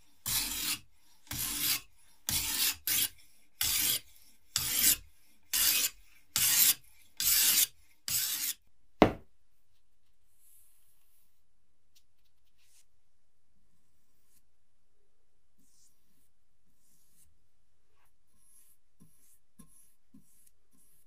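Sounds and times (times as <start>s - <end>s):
rasping abrasive strokes: 0.2s - 8.6s
sharp knock: 9.0s - 9.2s.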